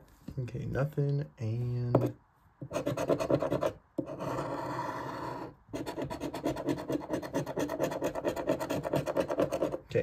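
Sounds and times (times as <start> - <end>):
coin scratching ticket: 2.7 - 9.8.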